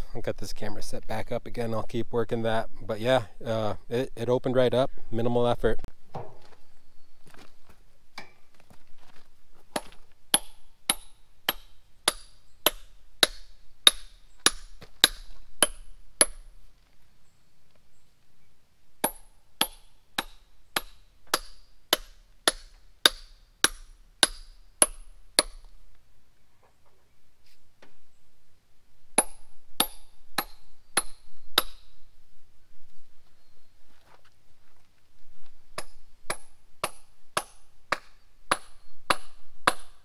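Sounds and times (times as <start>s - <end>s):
hammer striking steel wedges: 9.8s - 16.5s, 19.0s - 25.7s, 29.2s - 31.9s, 35.8s - 40.0s.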